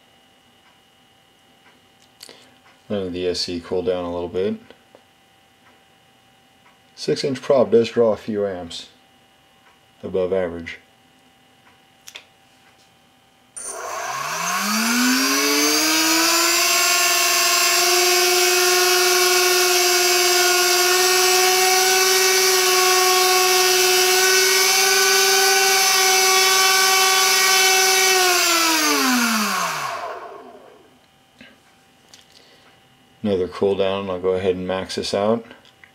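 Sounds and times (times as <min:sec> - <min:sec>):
brushless motor propeller whine: 0:13.6 - 0:30.9.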